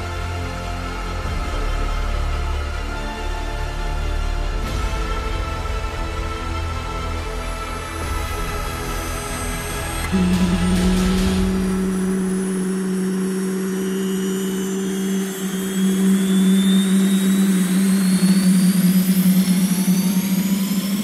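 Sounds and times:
low drone: 0:00.0 - 0:21.0
rising turbine whine: 0:07.2 - 0:21.0.

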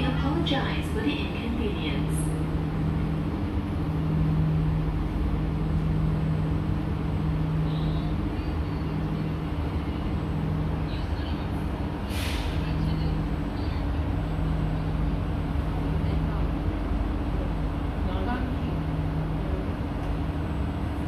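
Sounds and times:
train equipment low hum: 0:00.0 - 0:21.0
short hiss of air: 0:12.0 - 0:12.7.

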